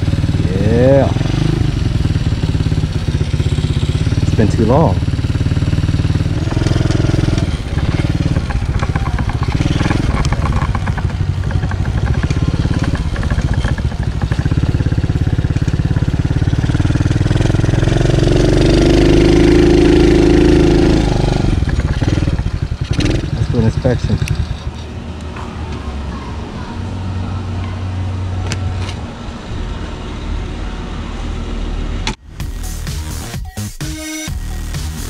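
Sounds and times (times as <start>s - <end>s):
dirt bike engine revving: 0.0s - 28.4s.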